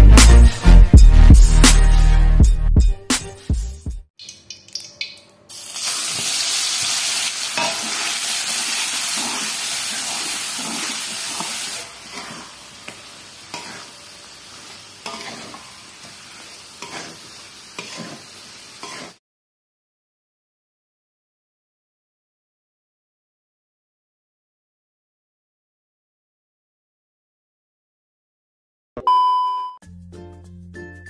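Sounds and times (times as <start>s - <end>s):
chili paste sizzling in oil: 4.7s - 19.2s
metal spatula scraping wok: 6.0s - 19.2s.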